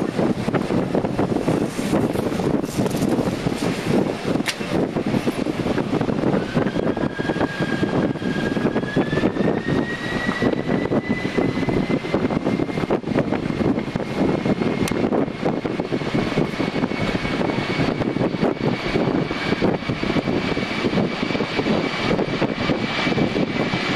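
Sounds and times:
jet engines roaring with whine: 0.0s - 23.9s.

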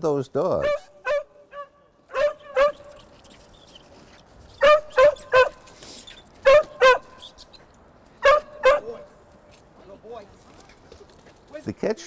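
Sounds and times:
dogs barking: 0.6s - 3.1s, 4.6s - 5.8s, 6.4s - 7.2s, 8.2s - 9.2s.

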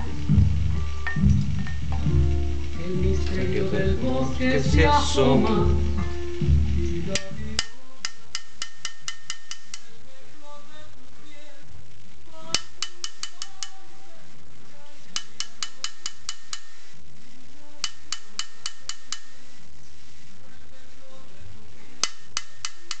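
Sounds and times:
background music: 0.0s - 11.6s, 12.3s - 16.9s
hammer tapping metal punch: 7.6s - 9.9s, 12.6s - 13.7s, 15.2s - 16.8s, 17.8s - 19.4s, 22.0s - 23.0s.

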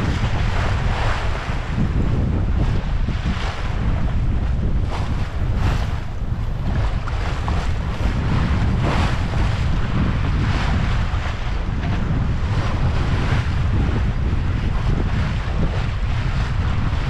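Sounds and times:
water splashing along hull: 0.0s - 17.0s
wind buffeting microphone: 0.0s - 17.0s.

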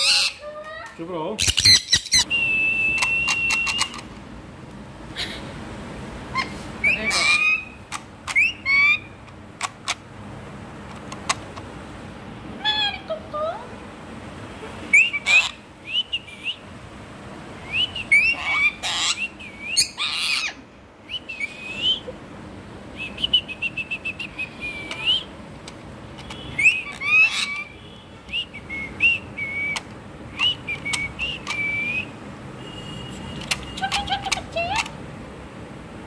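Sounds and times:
parrot screeches: 0.0s - 0.4s, 6.4s - 9.1s, 14.9s - 15.6s, 18.1s - 20.6s, 26.6s - 27.7s
parrot chirps: 0.0s - 0.5s, 1.4s - 4.1s, 6.3s - 9.2s, 14.9s - 16.6s, 17.6s - 22.1s, 23.0s - 25.3s, 26.2s - 32.1s, 33.1s - 34.9s
parrot whistles: 1.5s - 4.0s, 14.9s - 16.6s, 17.6s - 22.1s, 26.6s - 27.7s, 28.3s - 32.1s.

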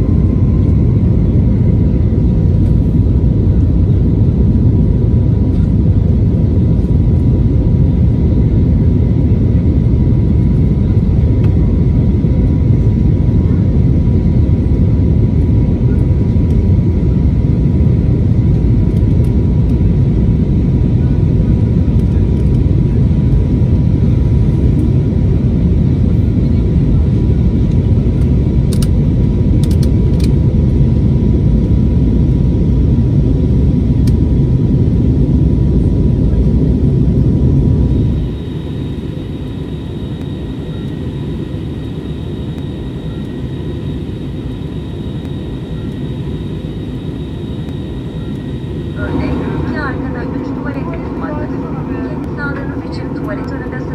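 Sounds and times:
airplane cabin airflow rush: 0.0s - 53.9s
cabin hum with faint whine: 36.3s - 53.9s.

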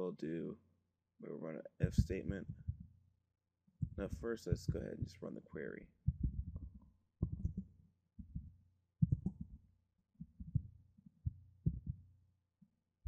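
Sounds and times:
faint low hum: 1.2s - 3.0s, 3.8s - 9.6s.

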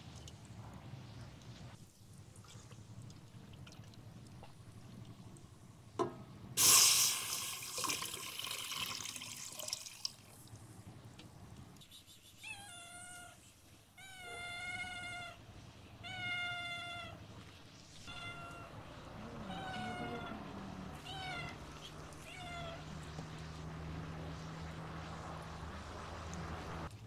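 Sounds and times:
cat meowing: 12.4s - 13.4s, 14.0s - 15.4s, 16.0s - 17.2s, 18.0s - 23.1s.

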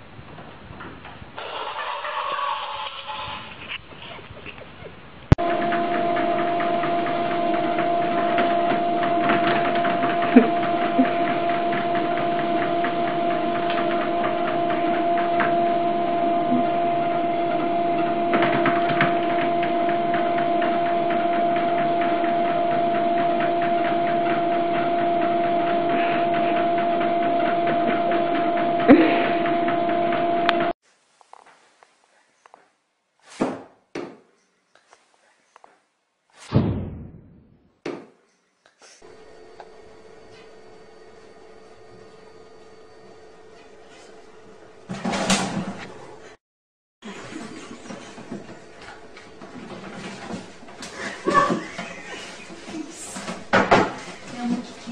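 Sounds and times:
treadmill motor humming: 5.3s - 30.8s, 47.1s - 54.9s.

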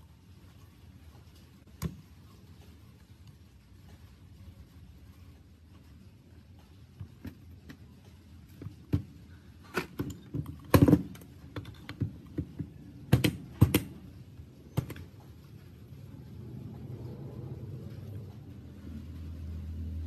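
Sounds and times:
metal engine parts clicking and knocking: 8.6s - 14.0s.

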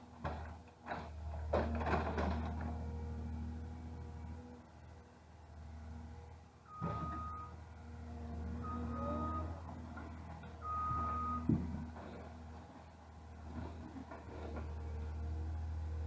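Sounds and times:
diesel engine running: 0.0s - 16.0s
reversing alarm beeping: 6.7s - 7.6s, 8.4s - 9.7s, 10.6s - 11.6s.

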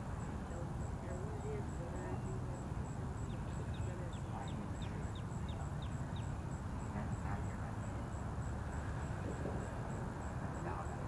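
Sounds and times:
bird chirping: 0.2s - 8.5s.

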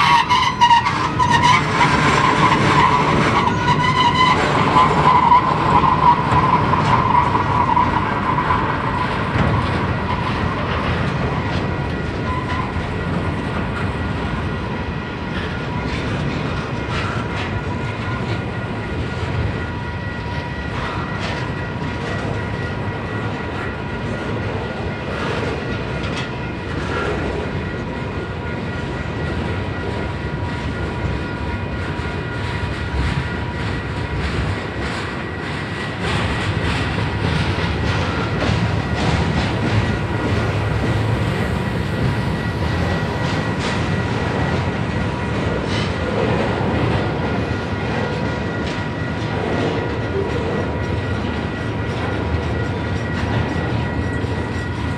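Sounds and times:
high wheel squeal: 0.0s - 13.9s
rail clicks: 0.0s - 54.9s
train wheels rumbling on rails: 0.0s - 54.9s.

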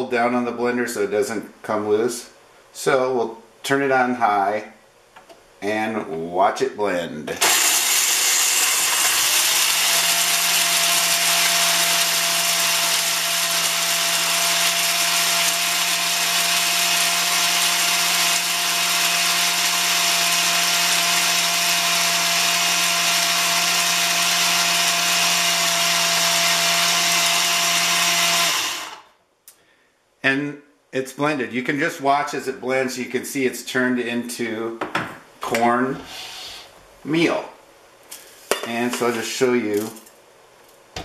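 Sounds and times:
blender grinding corn: 7.4s - 29.1s.

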